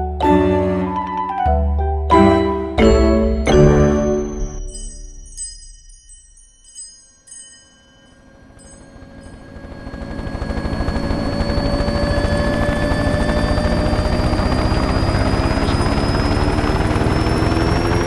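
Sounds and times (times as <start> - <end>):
helicopter whine rising in pitch: 2.8 - 18.0
helicopter rotor chop: 8.3 - 18.0.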